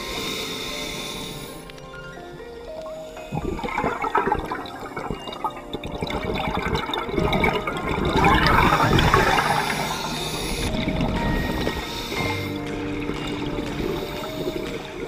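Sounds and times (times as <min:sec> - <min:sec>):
underwater exhaled bubbles: 0:03.2 - 0:15.0.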